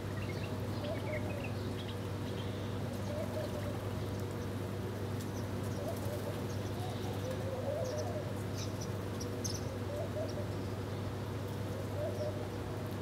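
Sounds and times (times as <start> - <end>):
low wavering bird calls: 11.9 - 12.5.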